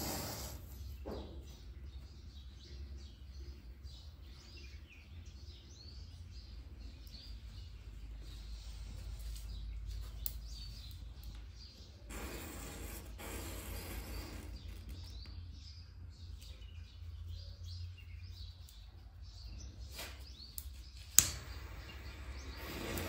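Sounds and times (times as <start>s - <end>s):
loud even hiss: 0.0s - 0.9s, 12.1s - 14.6s, 21.3s - 23.0s
faint birds chirping: 0.0s - 23.0s.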